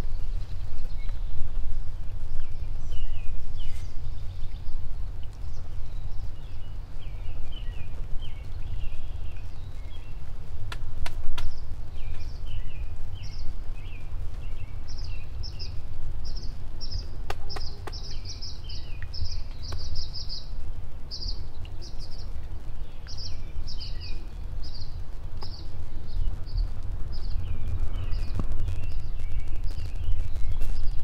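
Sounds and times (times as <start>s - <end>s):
small birds chirping: 0.0s - 31.0s
faint clicks: 25.3s - 25.6s.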